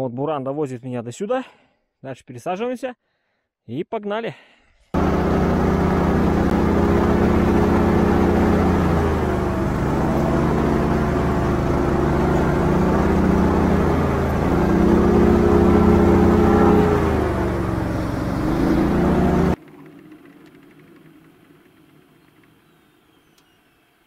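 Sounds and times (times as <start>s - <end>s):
airboat engine and propeller: 5.0s - 24.0s.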